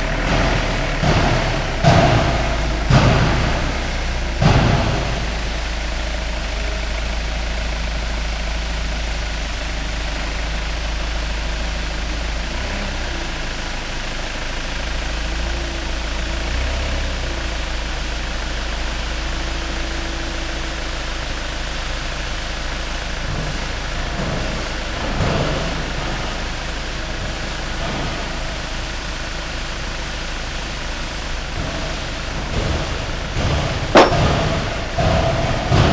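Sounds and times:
forklift engine running: 0.0s - 35.9s.

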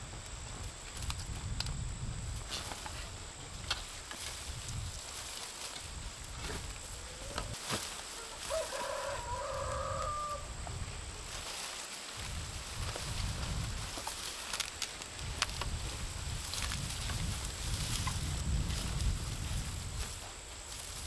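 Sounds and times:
rooster crowing: 8.2s - 10.6s.

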